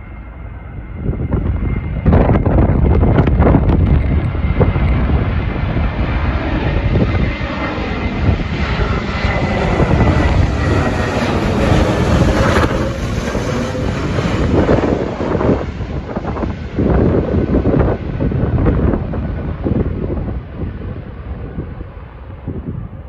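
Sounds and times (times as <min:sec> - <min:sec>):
faint high whine: 0:00.0 - 0:11.8
jet engine roar: 0:00.0 - 0:23.0.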